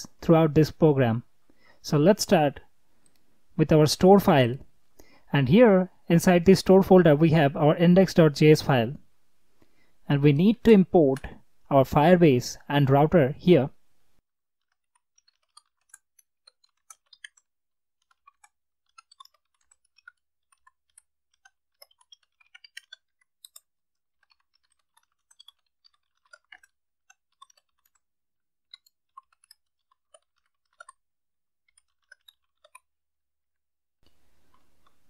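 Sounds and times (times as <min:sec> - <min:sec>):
keyboard typing clicks: 0:14.9 - 0:28.0.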